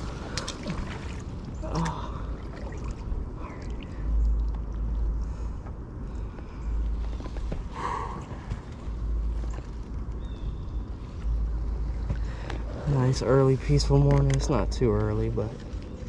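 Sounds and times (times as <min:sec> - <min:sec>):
kayak paddle dipping: 0:00.0 - 0:05.2
water sloshing against hull: 0:00.0 - 0:16.0.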